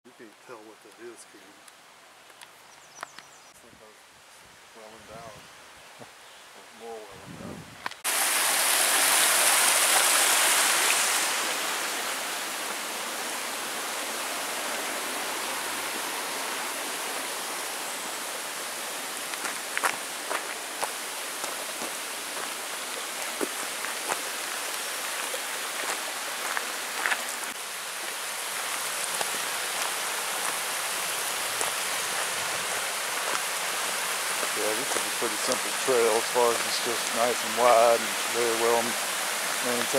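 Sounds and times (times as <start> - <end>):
stream rushing over rocks: 8.0 - 39.9.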